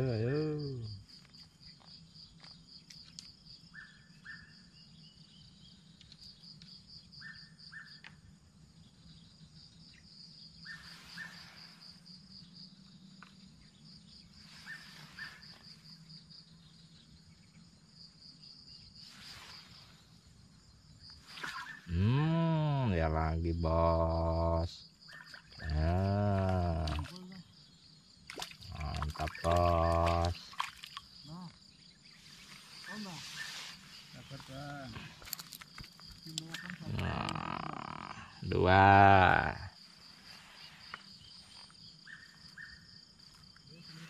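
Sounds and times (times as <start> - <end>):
insects trilling: 0.0 - 44.0
soft hissing swells: 19.0 - 20.4, 32.1 - 34.9.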